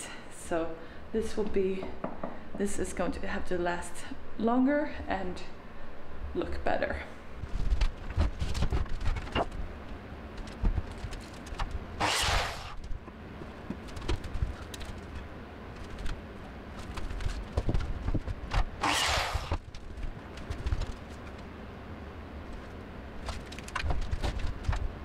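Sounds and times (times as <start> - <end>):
cordless drill drilling into wood: 12.0 - 12.8, 18.8 - 19.6.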